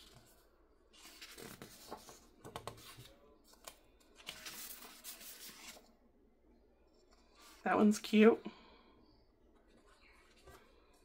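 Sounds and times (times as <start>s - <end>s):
paper sheets rustling: 1.0s - 5.8s.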